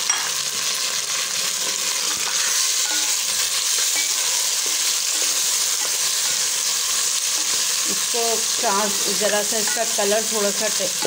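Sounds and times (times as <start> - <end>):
meat sizzling in hot oil: 0.0 - 11.0
spoon stirring: 1.6 - 7.8.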